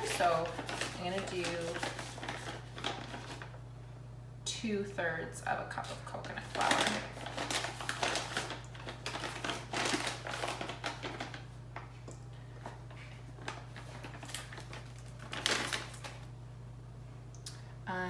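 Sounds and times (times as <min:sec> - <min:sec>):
paper bag crinkling: 0:00.0 - 0:03.6, 0:06.2 - 0:12.0, 0:12.6 - 0:16.3
steady low hum: 0:00.0 - 0:18.0.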